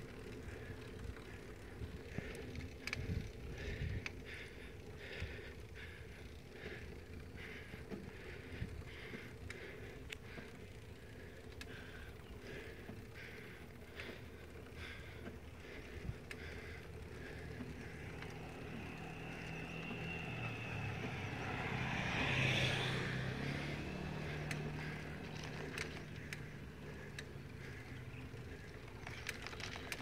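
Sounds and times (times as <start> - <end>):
vehicle passing on road: 0.0 - 30.0.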